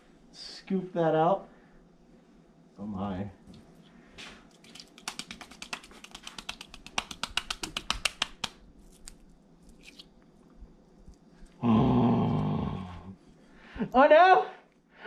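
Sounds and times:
utensil clicking against container: 4.5 - 8.5.

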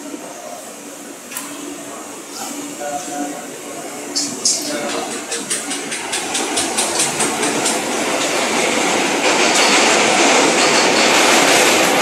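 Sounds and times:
train rumble: 0.0 - 12.0
train wheels clicking on rails: 4.0 - 12.0.

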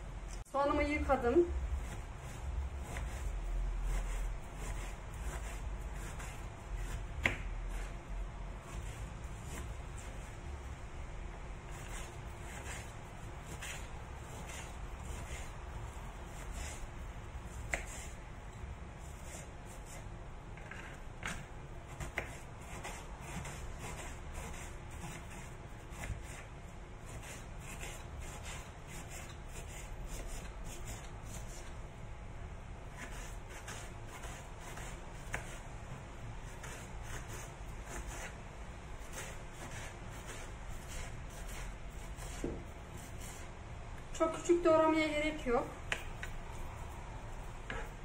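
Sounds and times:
knife chopping on wooden board: 3.9 - 7.9, 17.6 - 18.2, 20.6 - 26.5, 33.0 - 35.6, 39.0 - 43.4, 47.6 - 48.0.

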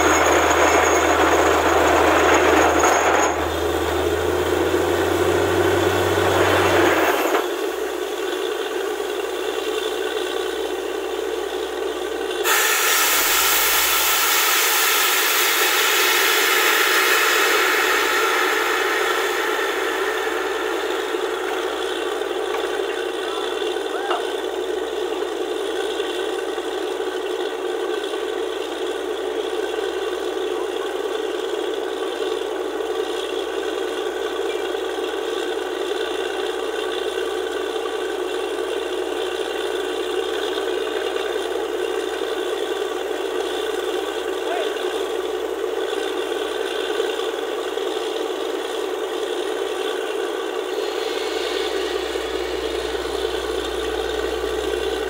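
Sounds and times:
deep engine hum: 0.0 - 55.0
drilling rig mechanical noise: 0.0 - 55.0
sharp hissing rush: 12.4 - 24.1, 50.0 - 55.0.

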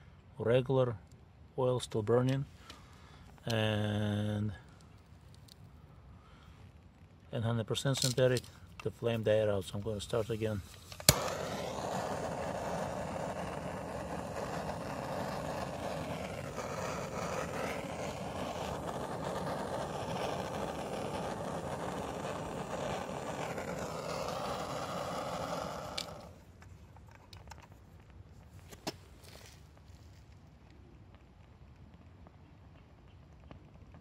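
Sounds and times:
gas torch hissing: 10.2 - 26.4.

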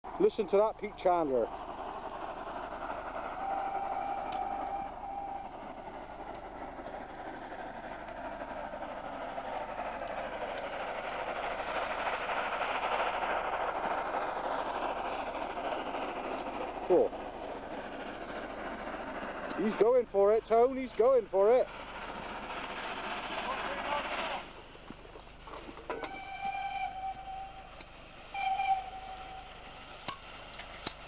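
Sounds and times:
steam locomotive exhaust: 0.1 - 31.0
steam whistle: 3.3 - 5.8, 25.9 - 29.7.

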